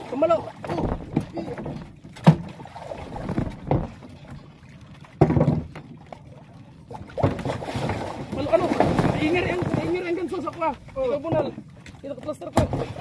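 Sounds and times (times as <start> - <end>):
water: 0.0 - 13.0
wind: 0.0 - 13.0
knocks on a boat: 0.6 - 2.6, 3.2 - 4.1, 5.2 - 6.0, 11.2 - 11.6, 12.5 - 12.9.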